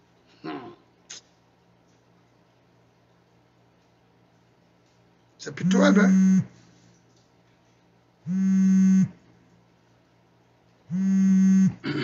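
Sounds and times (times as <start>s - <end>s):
low buzzing tone: 5.6s - 6.5s, 8.2s - 9.2s, 10.9s - 12.0s.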